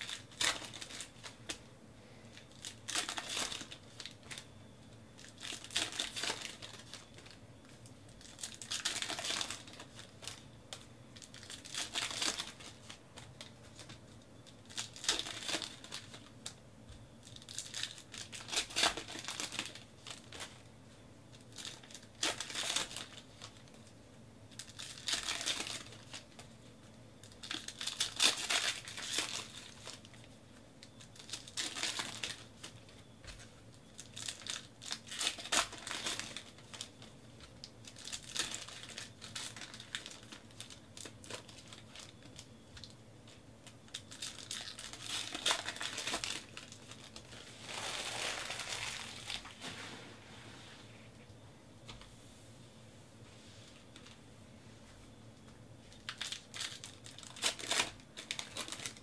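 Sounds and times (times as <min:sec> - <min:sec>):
card wrappers tearing and crinkling: 0:00.0 - 0:01.6, 0:02.3 - 0:04.5, 0:05.2 - 0:14.0, 0:14.6 - 0:16.3, 0:17.2 - 0:20.6, 0:21.4 - 0:23.7, 0:24.5 - 0:26.5, 0:27.2 - 0:30.2, 0:30.8 - 0:33.4, 0:34.0 - 0:42.9, 0:43.9 - 0:49.6, 0:55.9 - 0:59.0.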